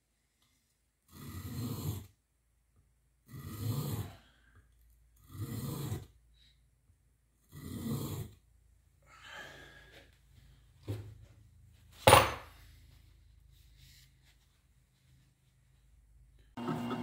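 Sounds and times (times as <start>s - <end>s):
heavy breath: 9.0s - 10.8s.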